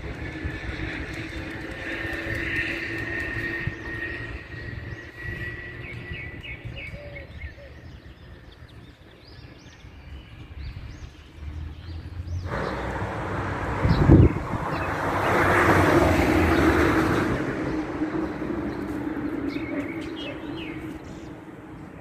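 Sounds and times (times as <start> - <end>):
traffic rumble: 0.0 - 22.0
small birds chirping: 0.6 - 13.1, 17.6 - 22.0
loud rushing noise: 12.4 - 19.8.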